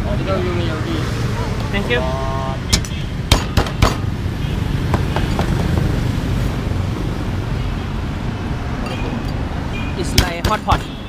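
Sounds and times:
street noise hum: 0.0s - 11.0s
cleaver chopping on wooden board: 2.7s - 4.0s, 10.2s - 10.8s.

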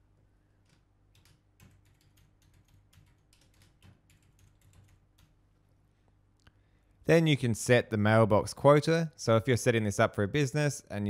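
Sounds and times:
computer keyboard typing: 0.6s - 5.4s.

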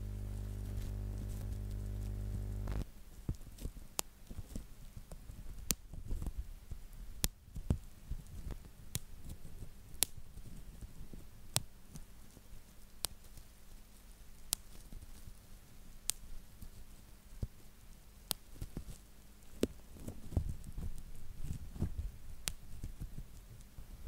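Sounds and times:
steady low hum: 0.0s - 2.8s
bubble wrap crinkling: 0.0s - 6.5s.

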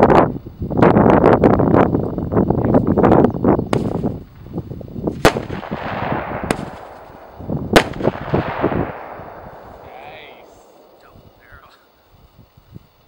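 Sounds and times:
sharp bangs with echoes: 5.1s - 12.0s.

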